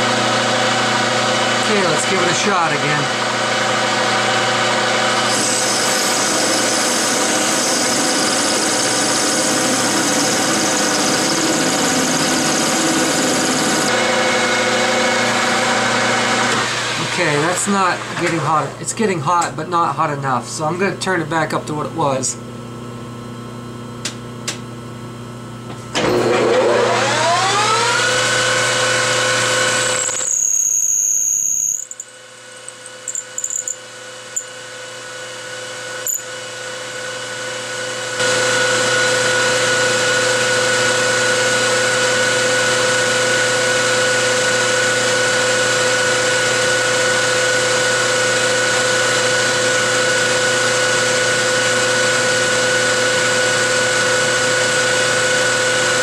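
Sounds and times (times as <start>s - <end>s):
lathe spindle whining: 0.3s - 18.8s.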